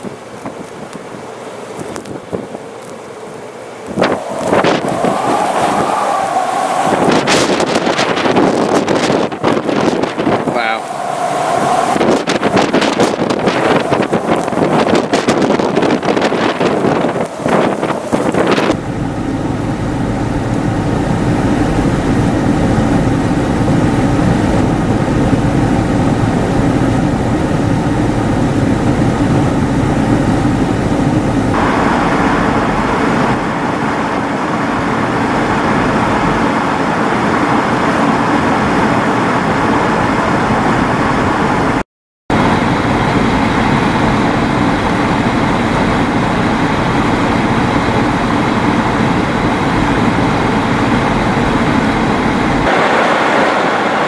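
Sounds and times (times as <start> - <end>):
low steady hum: 0.0 - 39.1
blizzard wind blowing hard: 0.0 - 54.0.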